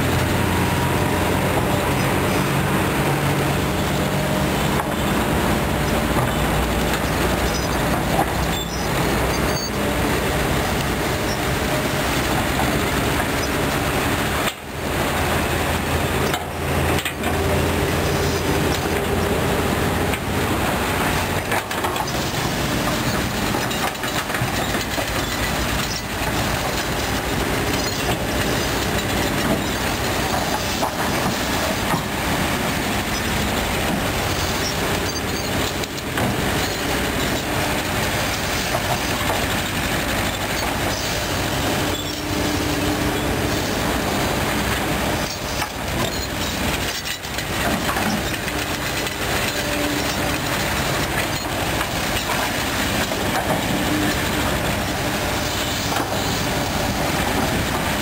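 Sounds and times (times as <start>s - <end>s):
diesel engine under load: 0.0s - 58.0s
excavator bucket scraping soil and stones: 16.0s - 58.0s.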